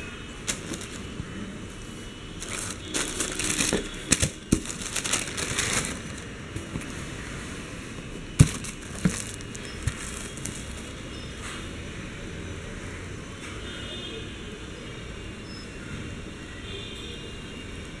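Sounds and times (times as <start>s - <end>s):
tissue paper rustling and crinkling: 0.4s - 1.4s, 2.4s - 7.0s, 8.3s - 11.1s.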